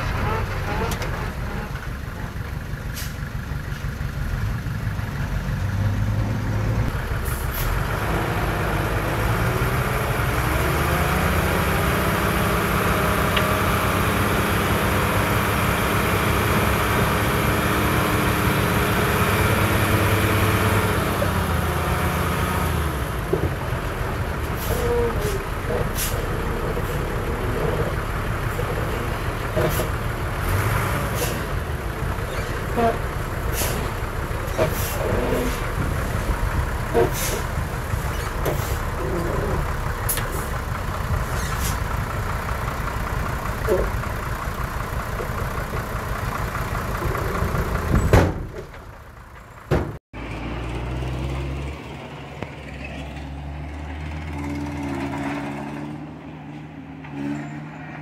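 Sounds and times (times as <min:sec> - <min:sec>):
heavy machine engine running: 0:06.7 - 0:49.7.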